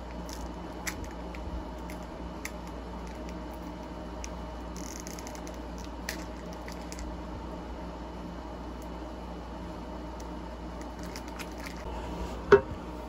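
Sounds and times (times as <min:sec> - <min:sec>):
steady low hum: 0:00.0 - 0:13.0
packaging crinkle: 0:10.8 - 0:11.9.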